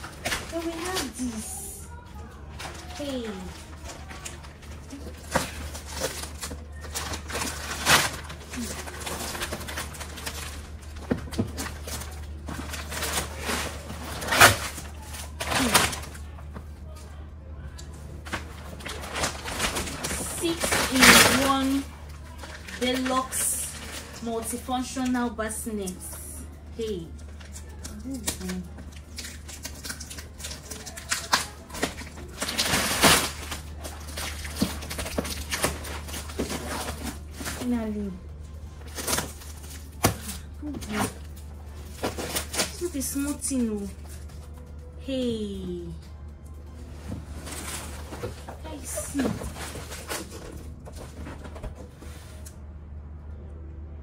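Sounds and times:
rustling: 0.0s - 52.6s
low hum: 0.0s - 54.0s
knocks and clicks of packaging: 2.5s - 17.1s, 17.7s - 25.6s, 27.1s - 44.9s, 46.4s - 52.6s
packaging rustling scrape: 46.9s - 52.5s.

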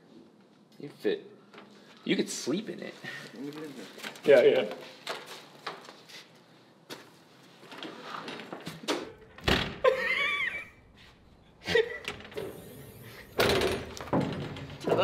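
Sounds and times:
steel locker door shutting: 12.0s - 15.0s
locker door knocks: 13.4s - 15.0s.

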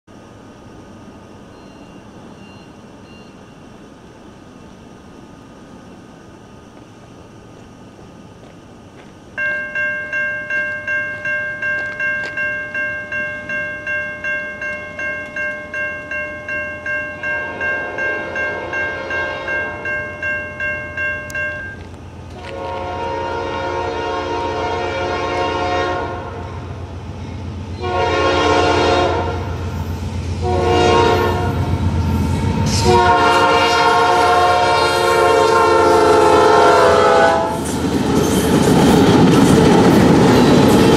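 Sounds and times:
low rumble of locomotive engine: 0.1s - 40.9s
electronic crossing bell dinging: 9.4s - 21.9s
locomotive air horn: 17.5s - 19.8s, 22.4s - 26.5s, 27.8s - 29.5s, 30.4s - 31.7s, 32.6s - 37.6s.

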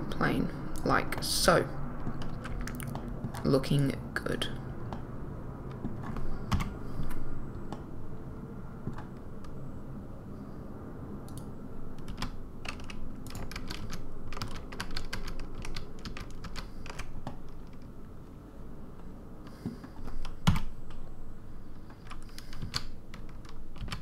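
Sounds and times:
low steady hum: 0.0s - 24.0s
keyboard keys clicking: 2.0s - 3.5s, 5.7s - 7.9s, 8.8s - 9.6s, 11.3s - 17.9s, 19.6s - 21.0s, 21.8s - 24.0s.

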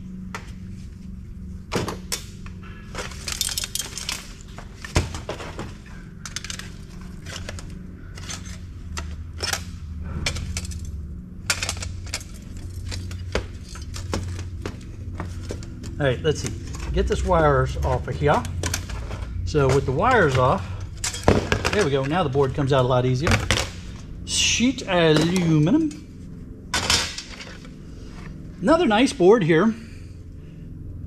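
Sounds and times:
steady low hum: 0.0s - 31.0s
metal parts clinking on workbench: 3.0s - 4.5s, 6.2s - 8.6s.

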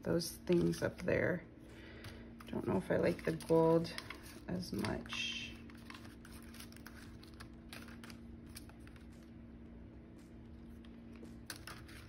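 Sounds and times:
low steady hum: 0.0s - 12.0s
paper rustling and tapping: 3.1s - 9.1s.

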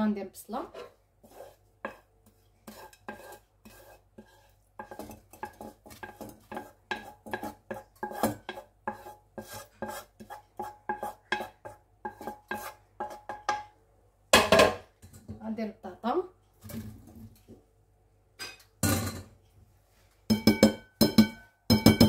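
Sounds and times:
spatula scraping frying pan: 0.5s - 13.6s.

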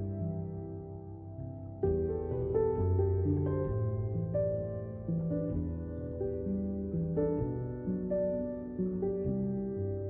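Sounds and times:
gentle new-age instrumental music: 0.0s - 10.0s.

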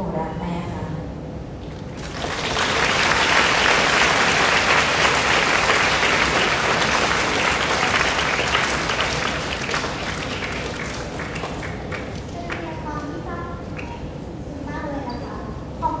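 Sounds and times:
audience applauding: 1.6s - 12.9s.

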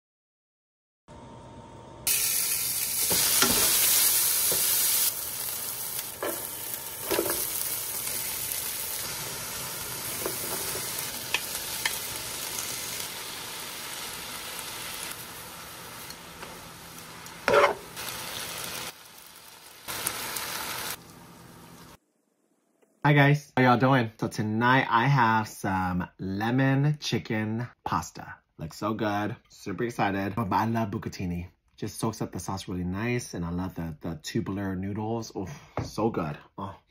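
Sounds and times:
food sizzling in a frying pan: 2.1s - 22.0s
utensil scraping a pan: 17.4s - 18.0s.

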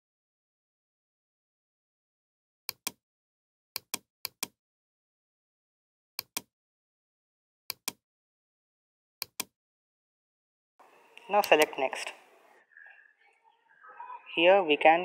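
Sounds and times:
computer mouse button clicks: 7.7s - 8.0s, 9.2s - 9.5s.

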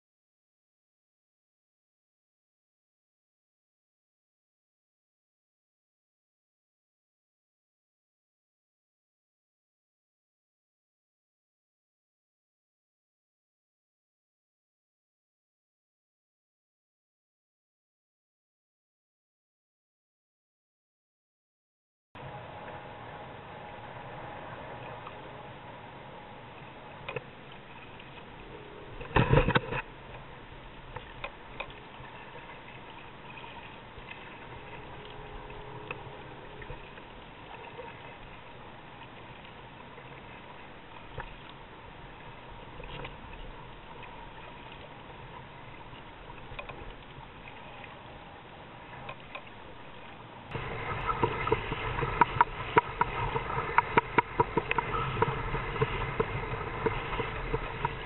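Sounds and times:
water washing against kayak: 24.6s - 58.0s
hull slapping and splashing: 50.5s - 58.0s.

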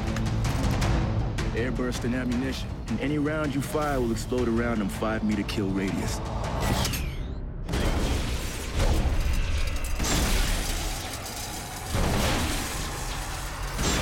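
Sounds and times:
explosive blasts: 7.7s - 14.0s
metal shattering: 7.7s - 14.0s.

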